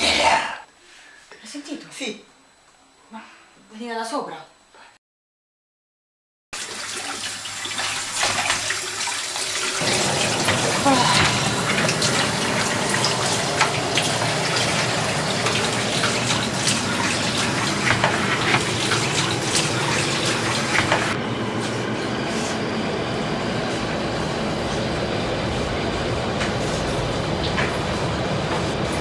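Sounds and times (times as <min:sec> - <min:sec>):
tap water running into a sink: 0:06.6 - 0:21.2.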